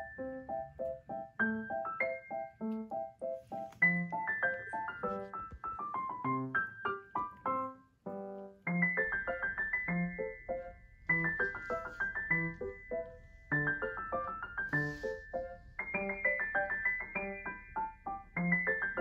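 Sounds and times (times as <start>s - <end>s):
light piano tune: 0.0s - 19.0s.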